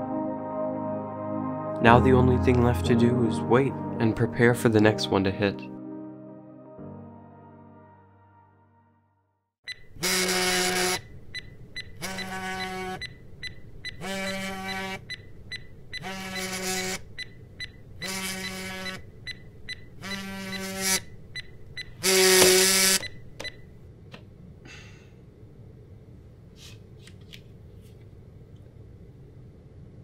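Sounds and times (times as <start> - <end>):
phone vibrating on wood: 9.7 - 15.3, 15.9 - 23.6.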